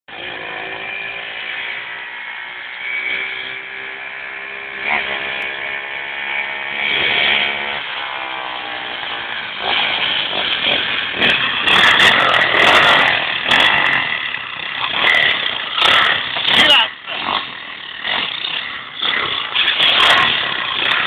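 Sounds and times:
motorbike engine revving: 0.1s - 21.0s.

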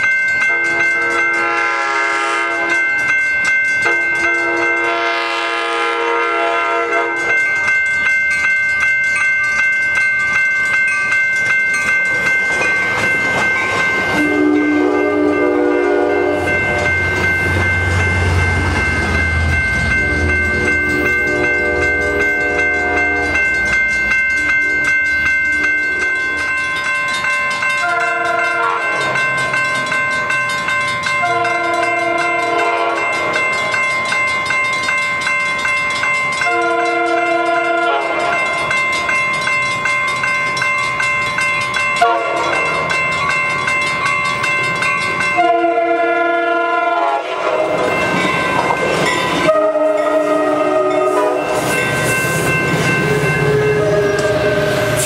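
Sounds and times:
crossing signal ringing: 0.0s - 55.0s
train horn blasts: 0.5s - 2.8s, 3.8s - 7.3s, 14.2s - 16.8s, 27.8s - 29.0s, 31.2s - 33.2s, 36.5s - 38.4s, 42.0s - 42.6s, 45.4s - 47.9s, 49.4s - 51.6s
locomotive engine rumbling: 12.1s - 26.5s.

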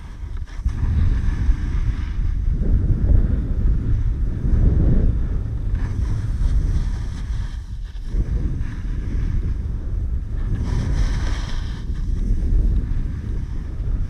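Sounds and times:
snowboard edge scraping snow: 0.0s - 2.4s, 5.8s - 9.6s, 10.2s - 13.8s
wind buffeting microphone: 0.0s - 14.0s.

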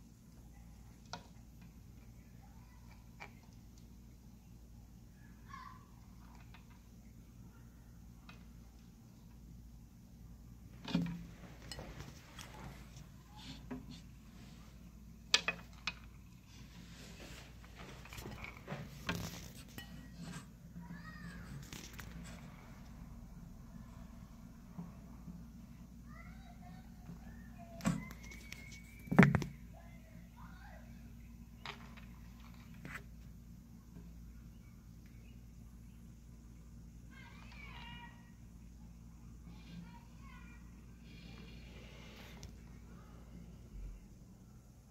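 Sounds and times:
steady low hum: 38.2s - 44.9s.

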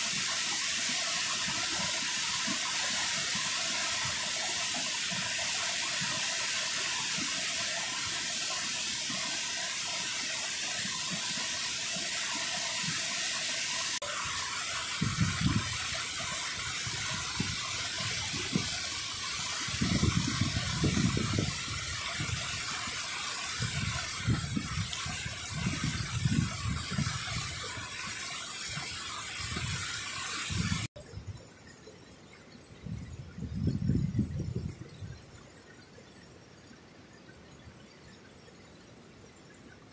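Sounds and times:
floodwater rushing: 0.0s - 30.9s
wind buffeting microphone: 14.9s - 15.8s, 19.7s - 22.6s, 23.6s - 27.6s, 32.8s - 35.2s.

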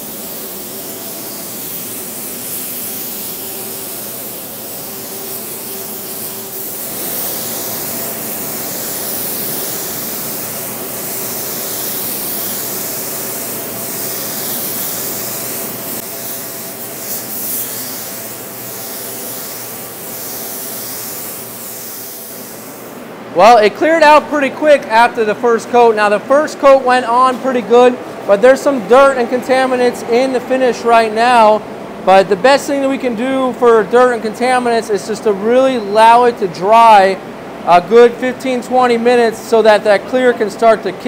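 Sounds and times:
spray gun hissing: 0.0s - 23.0s.

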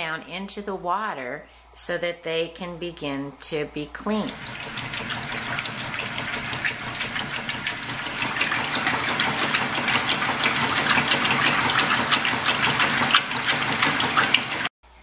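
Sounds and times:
washing machine motor humming: 4.1s - 14.7s
water sloshing: 4.2s - 14.7s.

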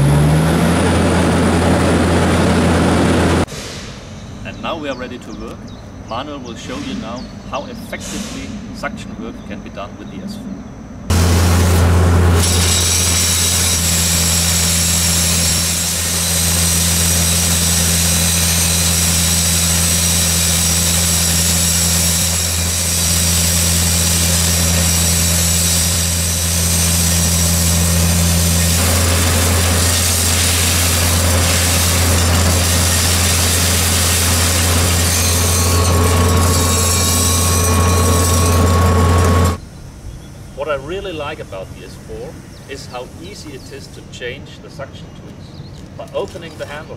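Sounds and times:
vacuum engine hum and whine: 0.0s - 45.7s
air and gravel rushing through hose: 12.4s - 39.6s.

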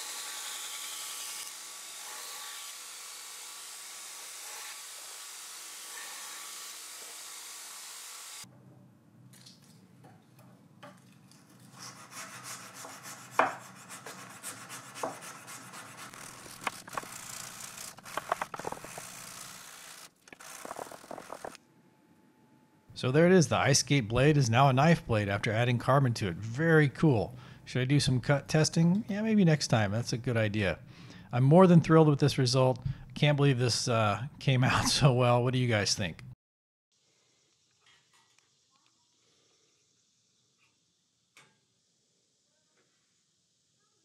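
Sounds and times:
abrasive stick sanding blade: 0.0s - 8.4s, 11.7s - 21.6s
belt grinder grinding blade: 0.0s - 8.5s, 14.0s - 21.6s.

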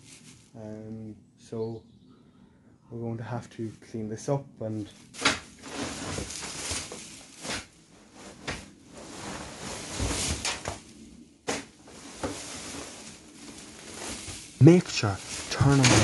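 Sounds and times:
tool scraping straw off floor: 5.2s - 10.9s, 11.5s - 16.0s.

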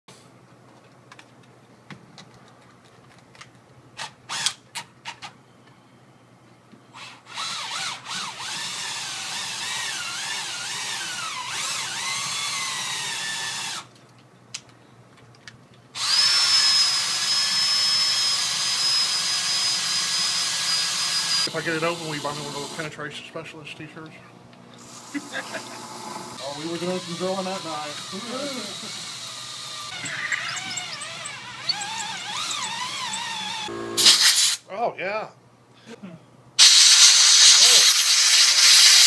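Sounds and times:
electric drill whining: 7.0s - 13.9s, 16.0s - 22.8s, 24.8s - 34.4s, 36.6s - 39.0s.

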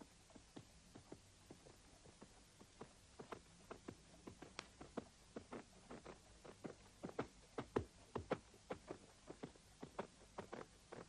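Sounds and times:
horse hooves walking through snow: 3.2s - 11.0s.

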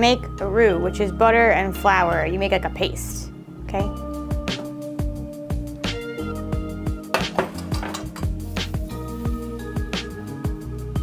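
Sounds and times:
background music with drum beat: 4.0s - 11.0s.

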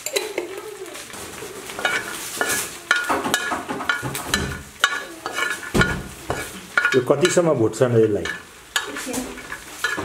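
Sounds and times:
faint sizzle: 0.0s - 10.0s
metal ladle scraping a pot: 1.6s - 7.5s, 8.2s - 10.0s.

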